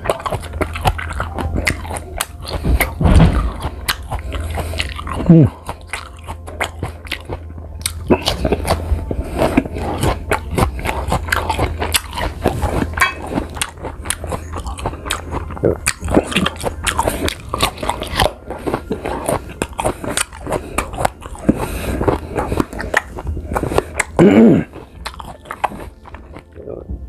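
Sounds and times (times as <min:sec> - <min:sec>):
crunching and chewing fruit: 0:00.0 - 0:27.0
low steady hum: 0:00.0 - 0:27.0.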